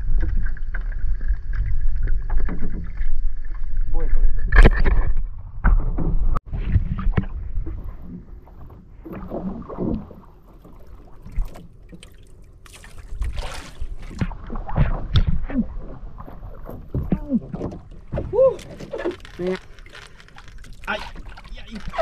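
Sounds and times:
water slapping against boat hull: 5.6 - 22.0
water splash surge: 12.7 - 16.2.

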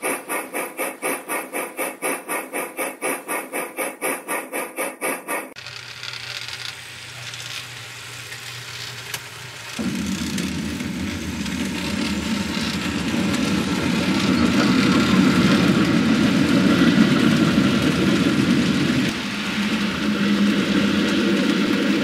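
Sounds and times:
model train rumbling on rails: 0.0 - 22.0.

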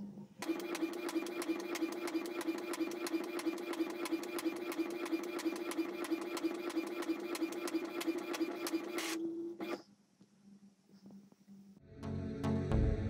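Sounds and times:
printer motor hum: 0.4 - 9.8
printer paper feed clicks: 0.4 - 9.8.

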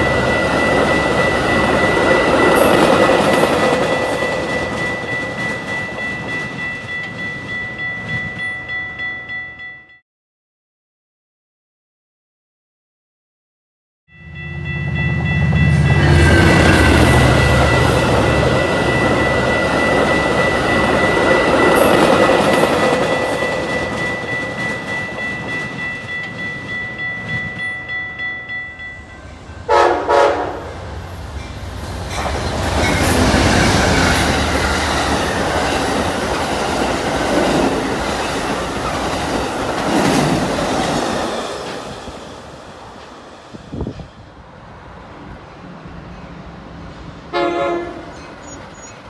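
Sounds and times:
train rail clatter: 0.0 - 8.7, 15.2 - 29.0, 29.6 - 44.3
train cars squealing: 15.2 - 27.7, 28.5 - 44.3, 47.8 - 49.0
train horn blasts: 29.6 - 30.8, 47.3 - 48.3.

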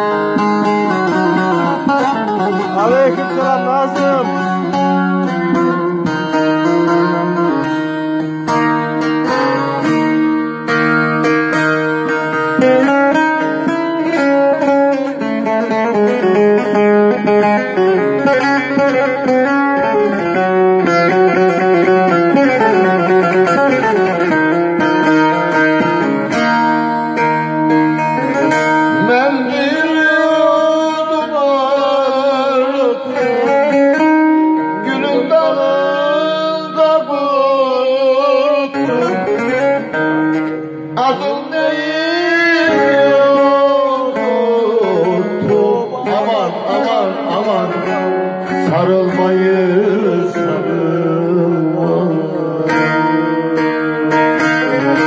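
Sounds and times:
man singing into a microphone: 0.0 - 8.0, 28.2 - 55.0
plucked lute melody: 0.0 - 55.0.

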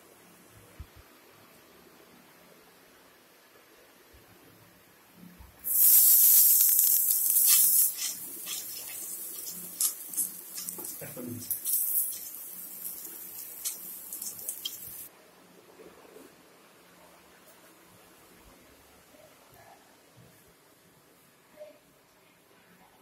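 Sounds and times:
coconut sizzling in hot oil: 5.6 - 15.1
wooden spatula scraping pan: 6.7 - 15.0.

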